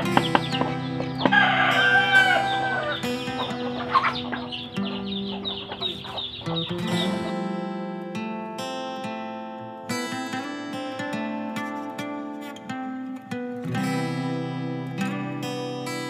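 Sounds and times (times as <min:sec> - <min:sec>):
chicken clucking: 0:00.0 - 0:07.2
acoustic guitar music: 0:00.0 - 0:16.0.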